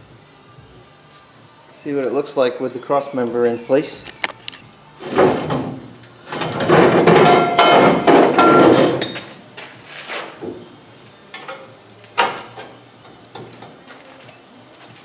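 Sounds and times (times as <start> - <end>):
metallic knocks: 6.6 - 9.3
steel tubing clanking on metal: 6.8 - 9.3.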